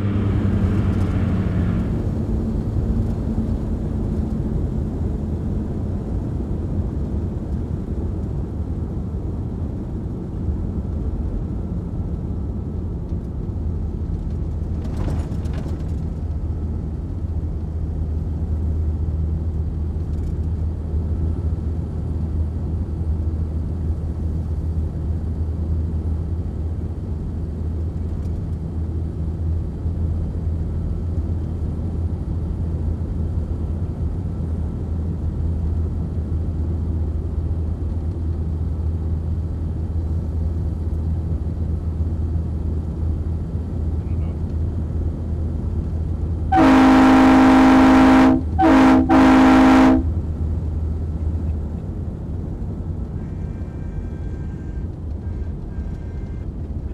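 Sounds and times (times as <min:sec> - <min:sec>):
truck diesel engine droning: 0:00.0 - 0:05.6, 0:38.6 - 0:56.9
short clatter: 0:14.2 - 0:16.4.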